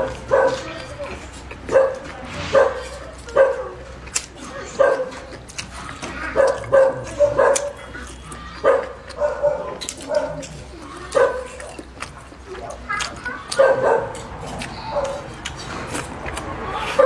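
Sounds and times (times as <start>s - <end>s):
dog barking: 0.0s - 0.8s, 1.7s - 3.8s, 4.7s - 5.3s, 6.3s - 8.0s, 8.6s - 11.8s, 12.6s - 14.3s, 14.9s - 15.3s.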